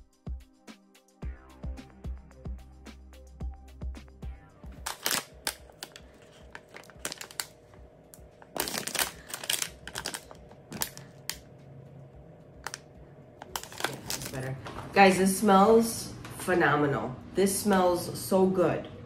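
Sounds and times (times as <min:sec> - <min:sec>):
plastic bag crinkling: 0:04.8 - 0:11.4, 0:13.4 - 0:14.6.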